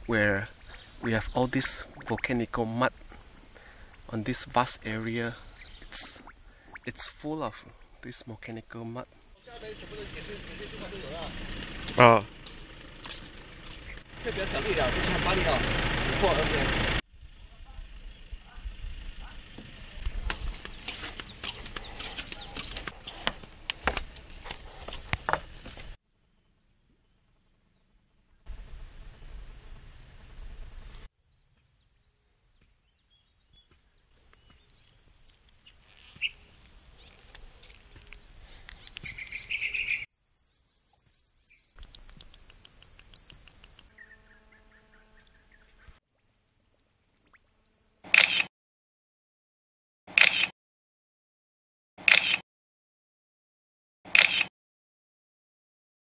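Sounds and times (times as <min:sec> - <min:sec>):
high insect hum: 0:00.0 - 0:48.1
bird chirps: 0:04.8 - 0:07.1, 0:20.4 - 0:23.3, 0:31.3 - 0:46.0
footsteps on wooden boardwalk: 0:11.2 - 0:14.1, 0:19.6 - 0:26.0.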